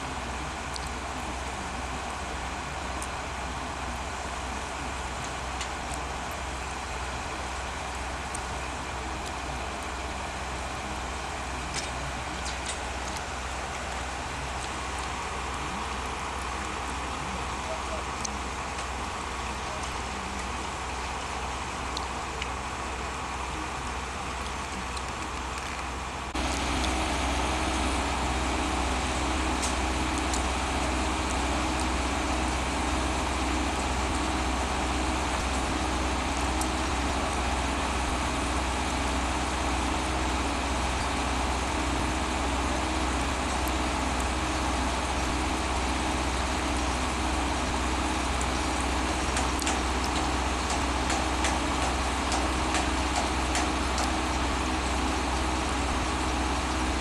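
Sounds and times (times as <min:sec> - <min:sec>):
train engine idling: 0:00.0 - 0:57.0.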